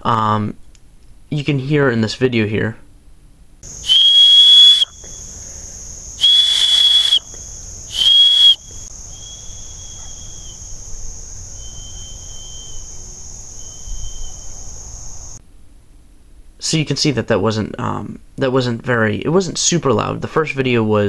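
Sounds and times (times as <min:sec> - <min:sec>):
whistle blasts: 0:03.8 - 0:05.4, 0:06.2 - 0:10.6, 0:11.6 - 0:14.6.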